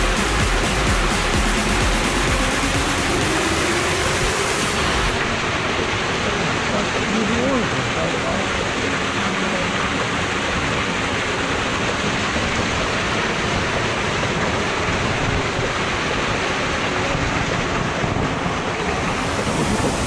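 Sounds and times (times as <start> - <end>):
small waterfall splashing: 0.0 - 20.0.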